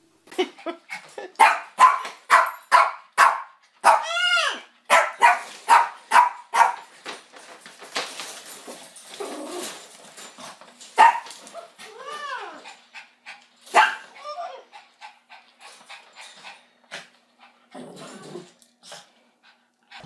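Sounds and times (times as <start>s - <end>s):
small dog barking: 1.4s - 4.2s, 4.9s - 6.8s, 11.0s - 11.3s, 13.7s - 14.0s.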